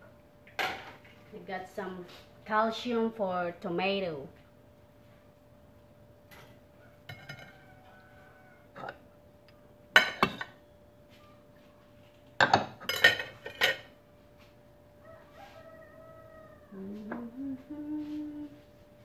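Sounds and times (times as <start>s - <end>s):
dishes and utensils clattering: 6.3s - 7.6s, 10.0s - 10.6s, 12.4s - 13.9s
woman humming: 16.5s - 19.0s.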